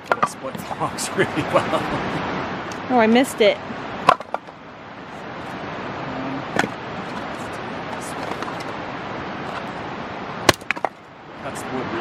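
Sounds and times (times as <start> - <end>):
steady rushing noise: 0.0 - 12.0
hatchet striking wood: 10.5 - 11.0.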